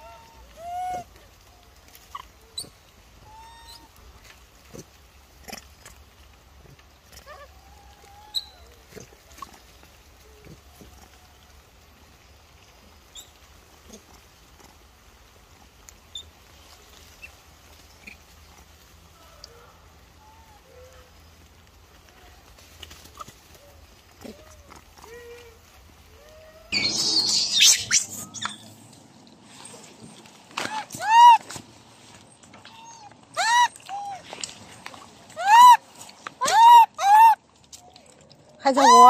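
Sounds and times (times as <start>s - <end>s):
young monkey cooing: 0.0s - 1.2s, 2.1s - 4.0s, 7.1s - 9.6s, 23.1s - 28.8s, 30.6s - 31.6s, 32.6s - 34.4s, 35.3s - 35.8s, 36.4s - 37.4s, 38.7s - 39.0s.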